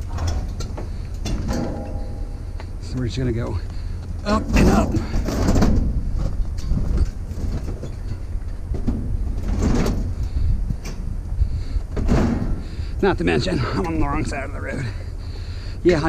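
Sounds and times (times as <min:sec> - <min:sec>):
scrap metal load rattling: 0:00.0 - 0:02.6
vehicle road rumble: 0:00.0 - 0:16.0.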